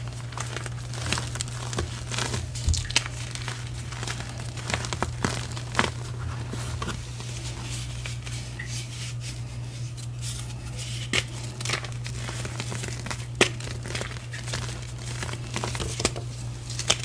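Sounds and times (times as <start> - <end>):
chalk crunching in hands: 0.0 - 9.4.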